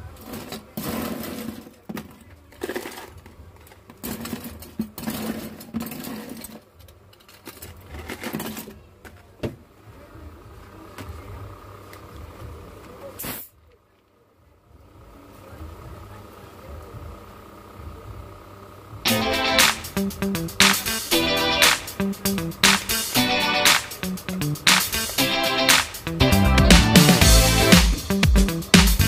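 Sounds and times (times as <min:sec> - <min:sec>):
ice rattling and scraping: 0:00.1 - 0:08.8.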